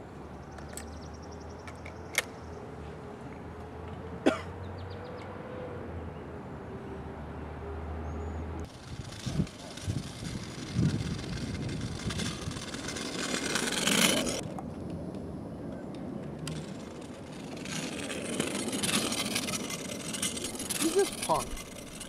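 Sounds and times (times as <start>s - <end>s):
low outdoor hum: 0.0s - 22.0s
man coughing: 4.2s - 4.6s.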